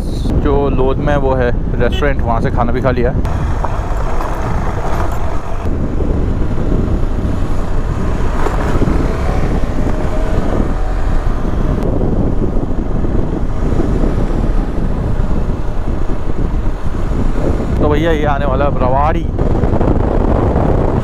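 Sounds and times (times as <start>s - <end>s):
wind rush on microphone: 0.0s - 21.0s
motorcycle engine running: 3.3s - 17.7s.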